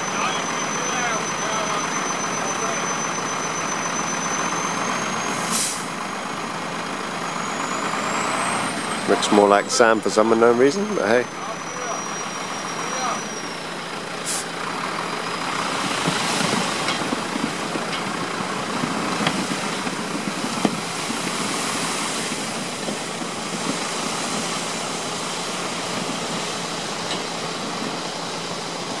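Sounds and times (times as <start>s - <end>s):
truck engine idling: 0.0s - 29.0s
gravel sliding out hissing: 15.5s - 27.0s.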